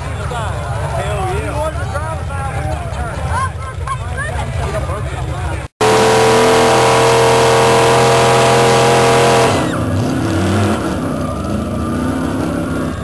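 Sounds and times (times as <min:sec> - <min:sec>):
truck engine revving under load: 0:05.8 - 0:13.0.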